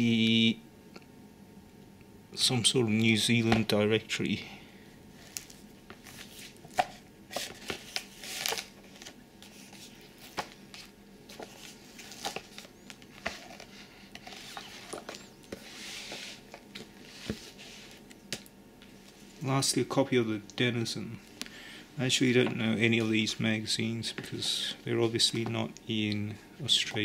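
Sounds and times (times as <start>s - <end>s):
pages turning and rustling: 5.2s - 19.4s.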